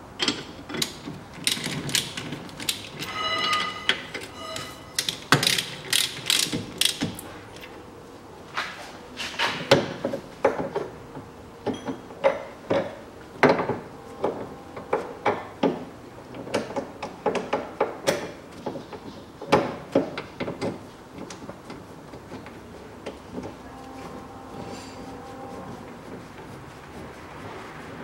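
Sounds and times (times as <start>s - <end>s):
hand tools clanking on metal: 0.2s - 7.7s, 23.1s - 25.5s.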